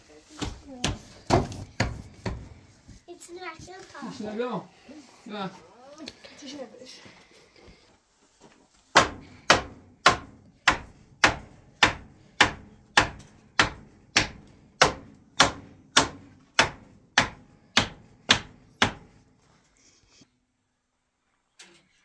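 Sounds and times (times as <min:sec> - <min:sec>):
hammer striking wooden poles: 0:00.4 - 0:02.6, 0:08.9 - 0:19.2.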